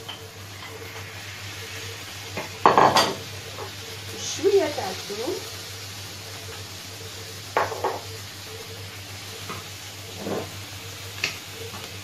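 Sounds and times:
vegetables sizzling in oil: 0.0 - 12.0
spoon knocking on frying pan: 7.6 - 8.1.

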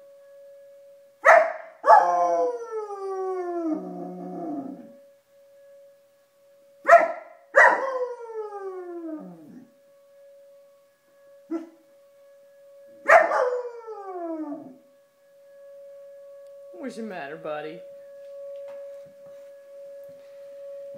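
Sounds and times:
warning siren: 0.0 - 20.9
dog barking: 1.2 - 2.0, 6.9 - 7.8, 13.1 - 13.5
dog howling: 1.9 - 4.9, 7.6 - 9.7, 13.1 - 14.8.

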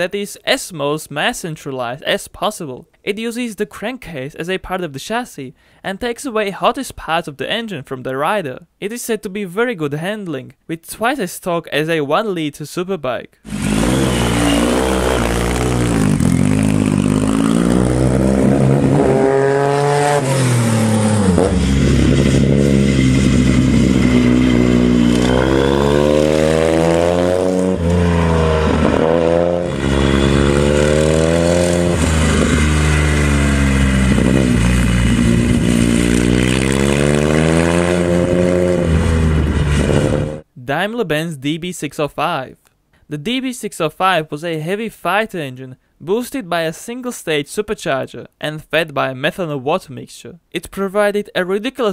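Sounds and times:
motorcycle engine revving hard: 13.5 - 40.4.

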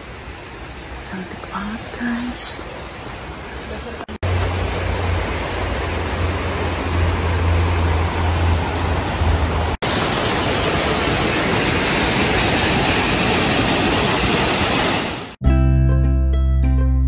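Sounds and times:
steady rushing noise with hum: 4.2 - 15.4
plucked-string background music: 15.4 - 17.0.

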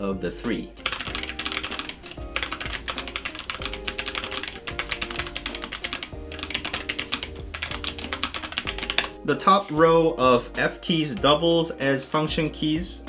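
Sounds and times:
mechanical keyboard typing: 0.8 - 9.2.

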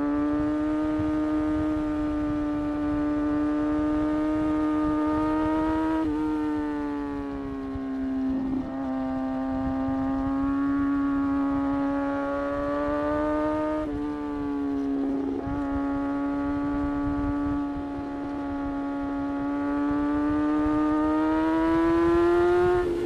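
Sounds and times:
motorcycle engine running: 0.0 - 23.0
wind rush: 4.8 - 20.9.

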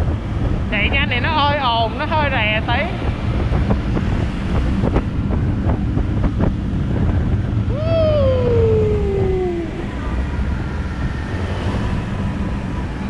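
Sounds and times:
wind buffeting microphone: 0.0 - 13.0
whine falling in pitch: 4.6 - 11.2.

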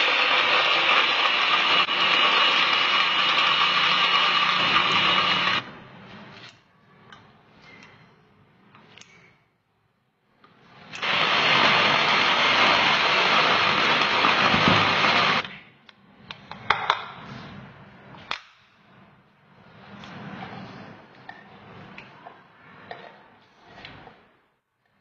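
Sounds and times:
electric food chopper running: 0.0 - 5.6, 11.0 - 15.4.

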